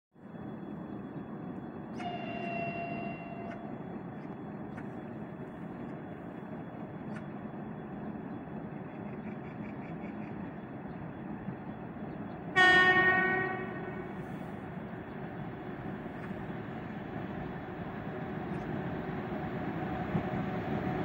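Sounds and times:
outdoor rumble and hiss: 3.5 - 12.4
distant horn: 12.5 - 14.5.

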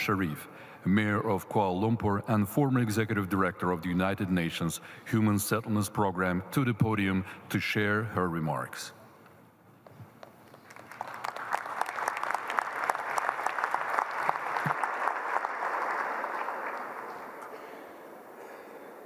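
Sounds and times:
crowd applauding: 10.5 - 18.8.

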